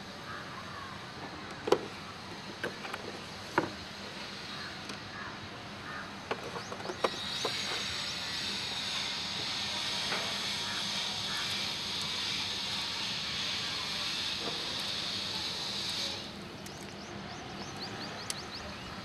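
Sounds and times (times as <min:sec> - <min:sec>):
steady high hiss: 0:00.0 - 0:19.0.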